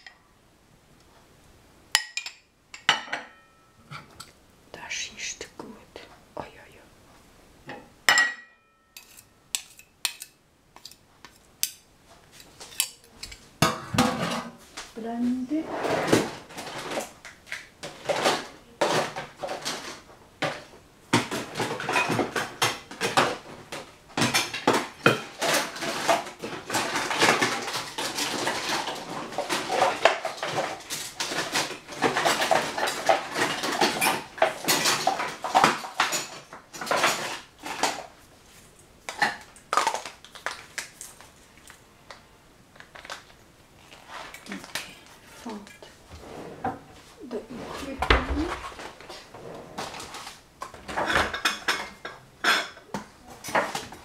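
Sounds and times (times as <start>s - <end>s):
dishes and utensils clinking: 1.9s - 4.3s, 7.7s - 14.6s, 17.8s - 38.1s, 49.8s - 54.0s.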